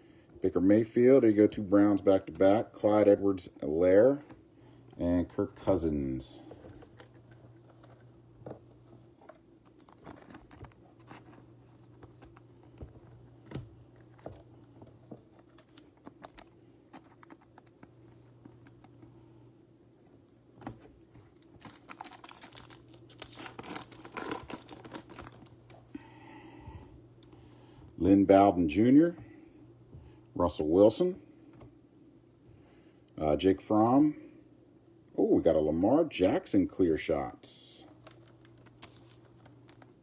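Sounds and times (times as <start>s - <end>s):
low steady hum: 0.0s - 40.0s
trading cards handled: 6.4s - 19.1s, 37.9s - 40.0s.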